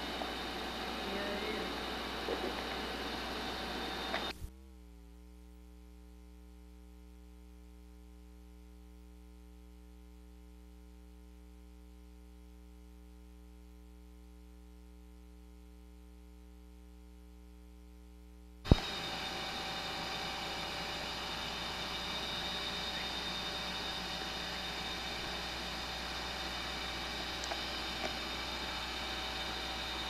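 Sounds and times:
electrical mains hum: 0.0 - 6.4, 14.8 - 30.0.

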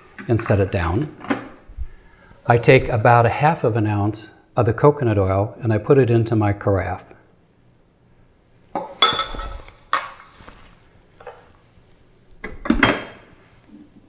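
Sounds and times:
glass clinking and knocking: 8.7 - 10.3.

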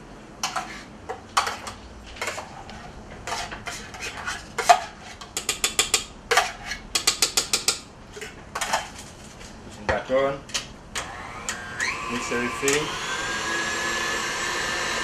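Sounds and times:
metal utensil scraping metal bowl: 0.4 - 6.9.

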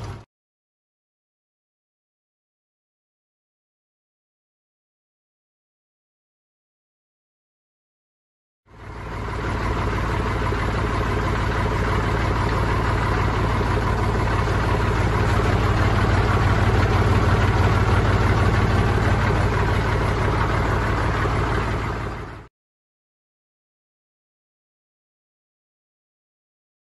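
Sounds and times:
tractor diesel engine running: 0.0 - 0.3, 8.7 - 22.5.

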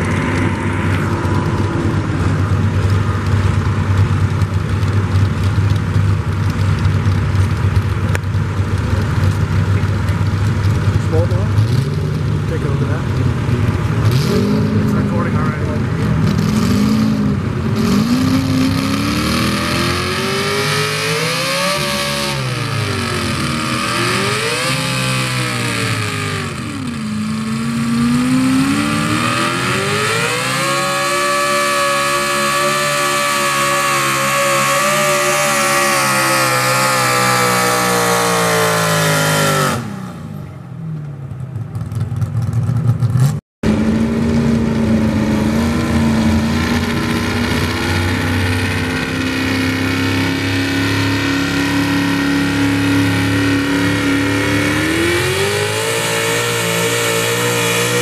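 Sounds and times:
pickup engine running steadily: 0.0 - 20.6
pickup engine revving under load: 0.0 - 40.9, 41.8 - 58.0.

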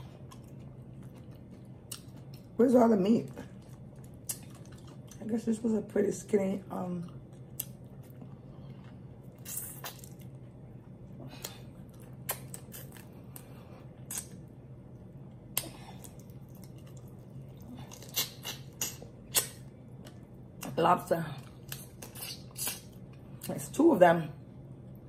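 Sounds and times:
wet eating squishes: 0.0 - 5.3, 7.1 - 14.6, 15.4 - 20.8, 21.4 - 23.4
low steady hum: 0.0 - 25.0.

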